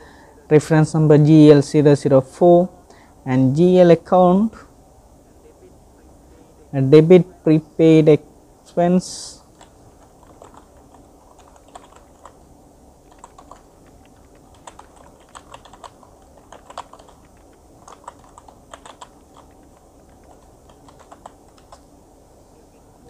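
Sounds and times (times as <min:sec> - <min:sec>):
keyboard typing clicks: 0:09.6 - 0:12.4, 0:13.0 - 0:21.8.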